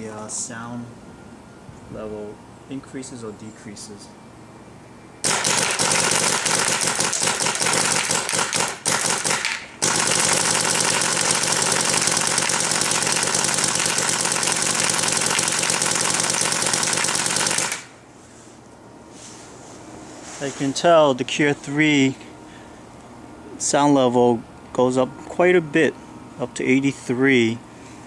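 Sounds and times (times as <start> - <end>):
paintball marker rapid firing: 5.2 - 17.9.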